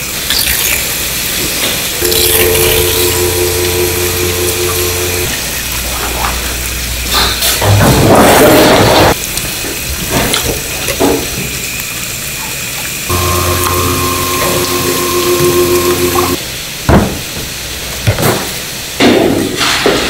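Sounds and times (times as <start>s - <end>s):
machine hum: 2.0s - 8.1s, 13.1s - 16.4s
tap water running into tray: 12.8s - 16.4s.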